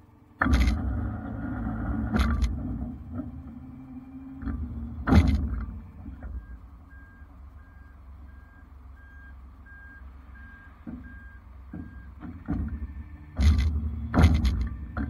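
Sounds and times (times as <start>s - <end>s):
low engine rumble: 0.0s - 15.0s
truck backup alarm beeping: 3.7s - 14.1s
thumps: 4.3s - 6.7s, 10.8s - 15.0s
sharp clunk: 4.4s - 6.4s, 11.7s - 15.0s.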